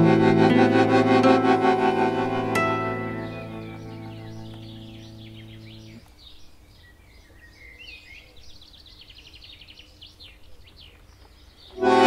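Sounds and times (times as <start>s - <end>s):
bandoneon chord: 0.0s - 5.8s, 11.8s - 12.0s
birds singing: 2.1s - 12.0s.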